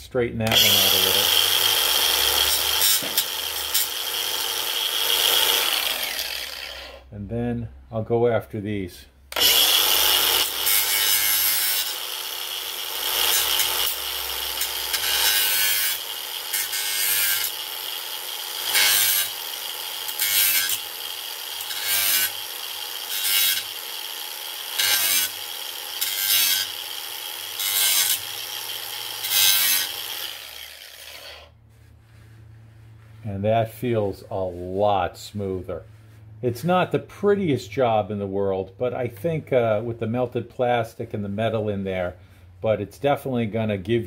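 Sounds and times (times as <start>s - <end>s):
angle grinder grinding metal: 0.4s - 7.1s, 9.3s - 31.6s
grinder winding down: 0.4s - 7.1s, 9.3s - 31.5s.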